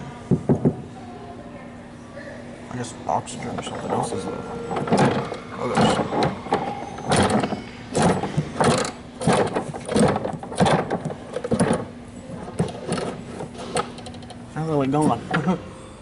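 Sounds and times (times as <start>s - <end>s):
balls clattering in a mechanism: 3.2s - 15.6s.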